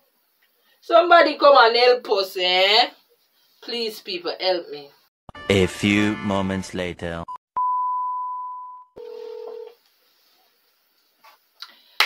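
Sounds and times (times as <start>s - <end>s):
short lower beep: 7.3s - 8.9s
high steady test tone beep: 7.6s - 9.0s.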